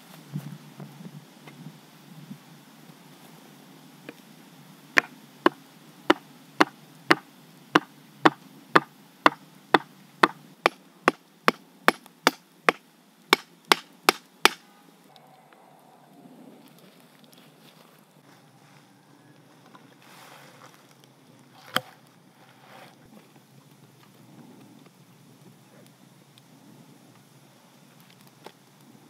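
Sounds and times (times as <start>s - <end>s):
stick knocking wooden stake: 5.0s - 7.2s, 7.8s - 14.6s.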